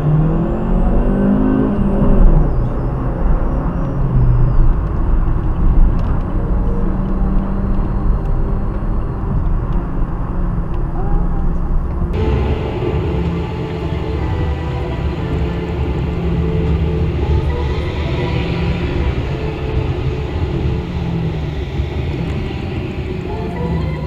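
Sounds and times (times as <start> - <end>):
car engine: 0.0 - 24.0
road noise inside car: 0.0 - 24.0.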